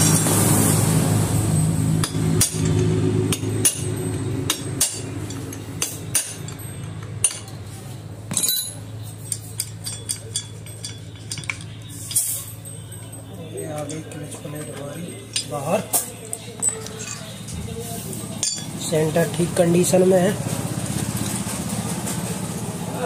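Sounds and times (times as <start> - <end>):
metal parts clicking and clinking: 2.0 - 7.7, 8.3 - 17.6, 18.4 - 18.9.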